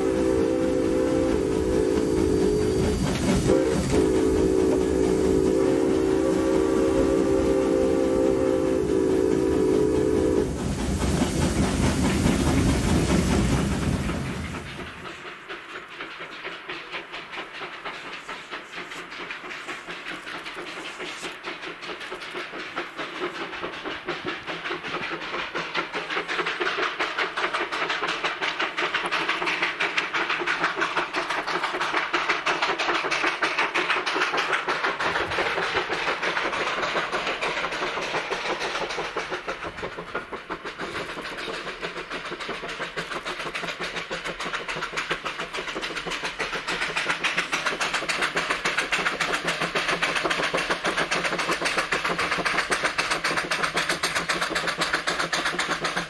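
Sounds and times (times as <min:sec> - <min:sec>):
steam locomotive chuffing: 0:00.0 - 0:56.0.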